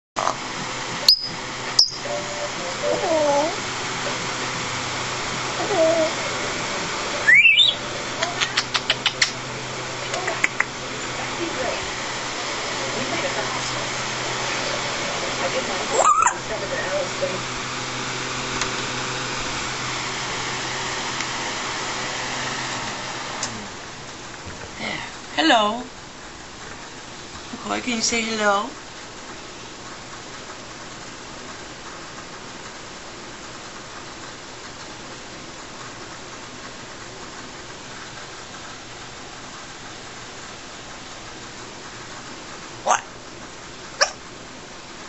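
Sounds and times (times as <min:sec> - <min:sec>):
low even hum: 0:00.2 - 0:29.7
constant hiss: 0:00.2 - 0:45.0.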